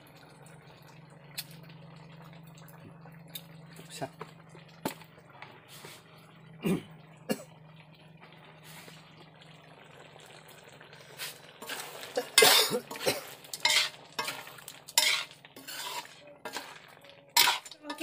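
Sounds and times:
metal spoon scraping a wok: 11.6s - 16.8s, 17.4s - 18.0s.

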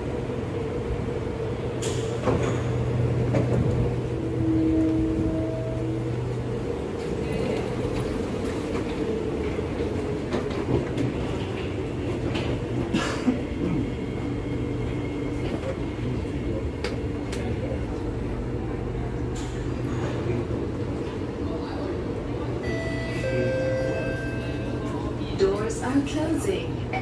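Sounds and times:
train low hum and rumble: 0.0s - 27.0s.

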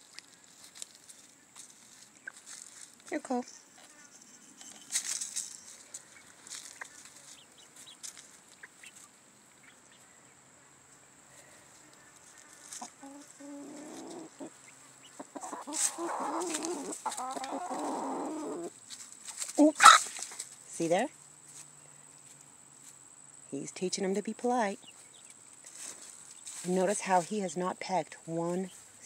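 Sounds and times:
chickens clucking: 1.9s - 2.7s, 3.8s - 10.1s, 11.6s - 20.9s
feed pattering onto dry leaves: 4.7s - 9.1s, 15.4s - 20.6s.

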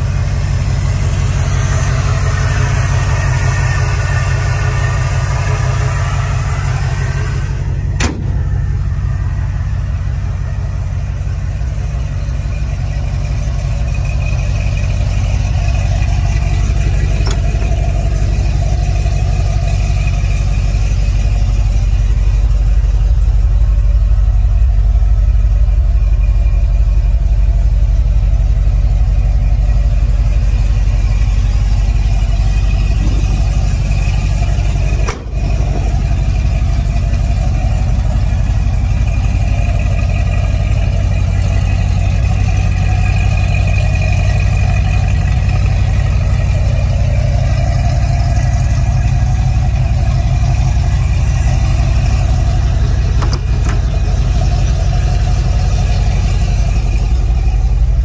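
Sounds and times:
engine idling: 0.0s - 58.0s.

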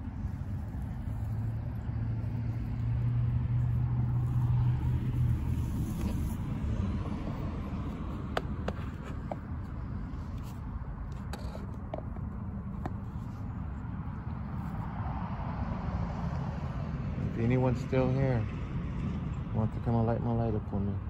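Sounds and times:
vehicle engine hum passing: 0.0s - 21.0s.

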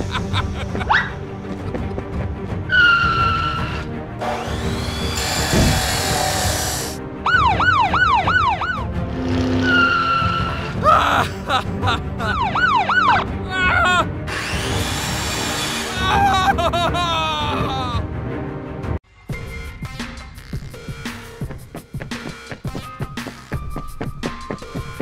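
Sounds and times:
background music: 0.0s - 25.0s
police siren wailing: 7.2s - 8.9s, 12.3s - 13.3s.

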